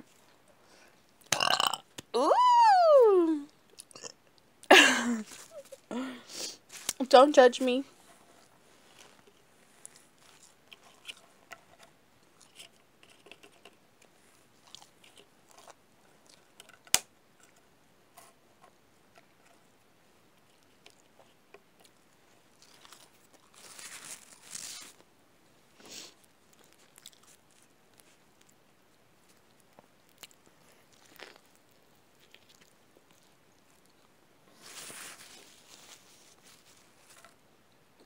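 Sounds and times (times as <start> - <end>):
person chewing: 8.9 - 11.3, 14.6 - 16.6, 20.4 - 24.9, 25.9 - 28.6, 29.3 - 34.1
noisy rustle: 22.2 - 25.1, 30.4 - 37.4.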